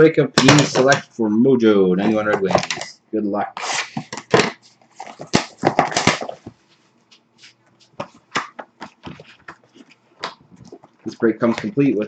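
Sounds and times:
taps and rustles of packs: 3.9s - 6.6s, 7.9s - 11.8s.

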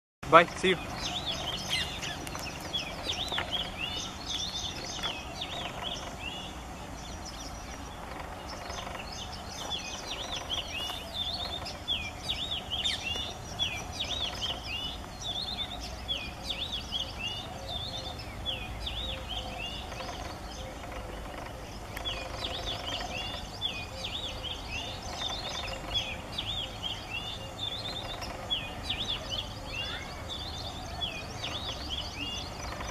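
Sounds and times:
bird singing whistled notes: 0.3s - 7.9s.

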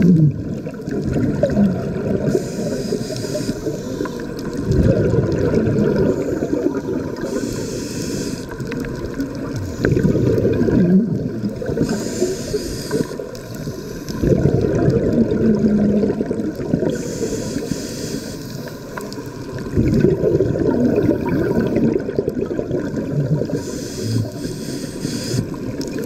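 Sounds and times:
bubbling exhalation underwater: 0.0s - 2.4s, 4.5s - 7.4s, 8.7s - 12.0s, 14.2s - 17.0s, 19.5s - 24.4s
regulator hiss on inhale: 2.2s - 4.5s, 6.0s - 8.9s, 11.6s - 14.3s, 16.8s - 19.3s, 23.4s - 25.8s.

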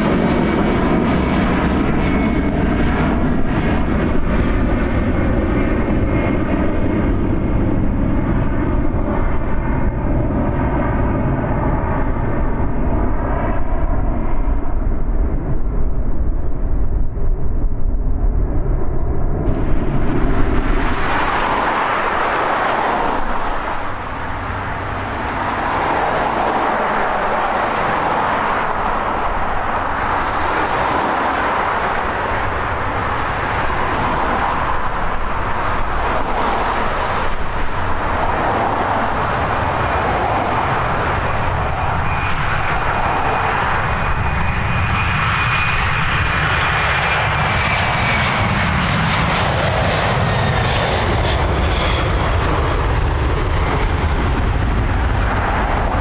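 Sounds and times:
jet airliner engine rumble: 0.0s - 56.0s
cars passing with tyre noise: 19.4s - 56.0s.

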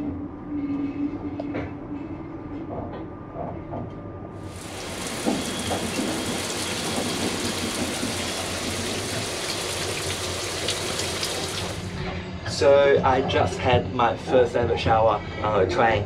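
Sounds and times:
shower spraying water: 4.5s - 12.0s.

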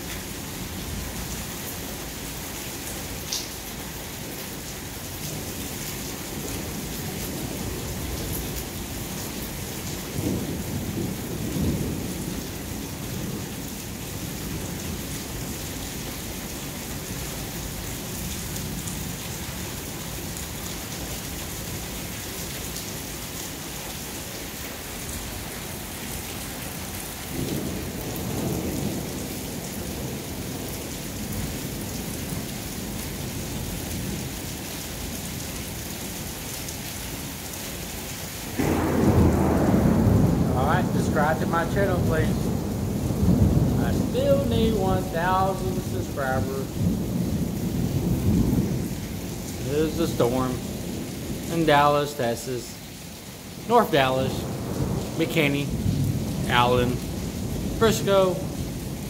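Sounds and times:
rain falling on a flat roof: 0.0s - 59.0s
low rolls of thunder: 5.2s - 19.7s, 26.0s - 34.3s, 38.5s - 46.0s, 46.6s - 49.7s, 50.5s - 51.5s, 54.4s - 57.8s, 58.4s - 59.0s
person's voice: 40.6s - 42.4s, 43.8s - 46.8s, 49.6s - 50.6s, 51.5s - 52.8s, 53.7s - 54.4s, 55.1s - 55.8s, 56.4s - 57.0s, 57.8s - 58.5s.

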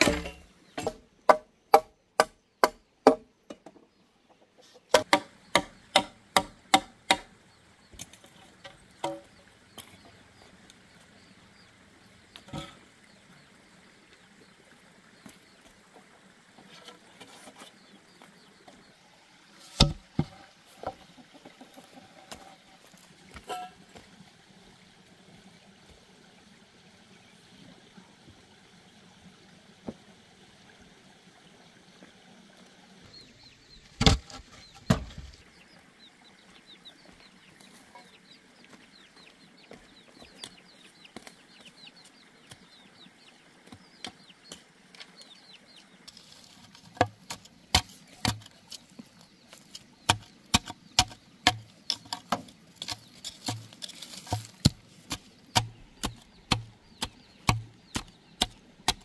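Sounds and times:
knife chopping bamboo: 4.9s - 7.3s, 19.8s - 20.1s, 47.0s - 48.6s, 50.1s - 59.0s.

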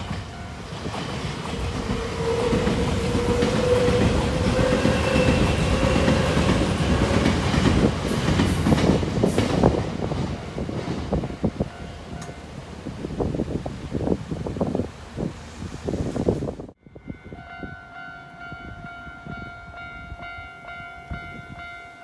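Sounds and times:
train wheels rumbling on rail: 0.0s - 16.8s.

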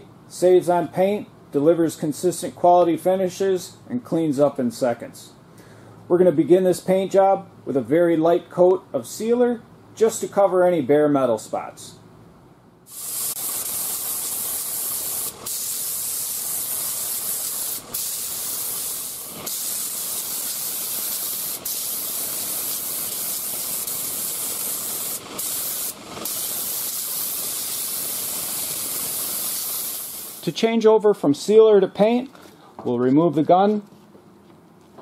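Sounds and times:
spray gun hissing: 12.9s - 30.5s.

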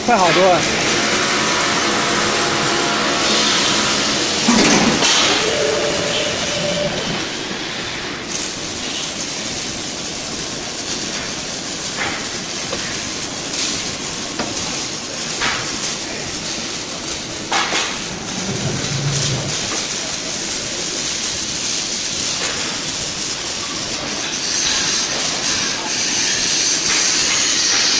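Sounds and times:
machine cutting steel: 3.2s - 7.4s, 14.6s - 20.6s.

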